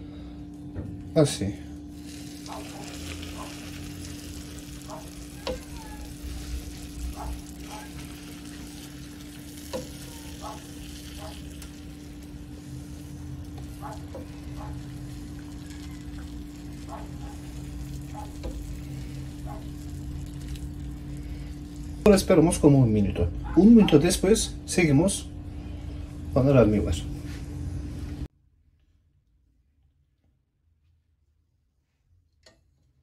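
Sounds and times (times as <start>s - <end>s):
syrup sizzling on cake: 1.9s - 22.3s.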